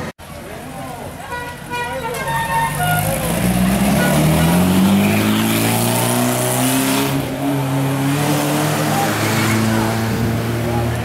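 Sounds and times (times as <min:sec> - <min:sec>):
car engine pulling away: 0:02.5 - 0:11.0.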